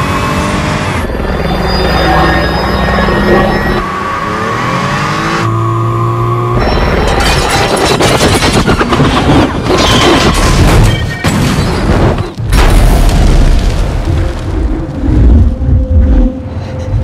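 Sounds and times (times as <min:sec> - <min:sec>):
deep explosion boom: 0:11.3 - 0:16.3.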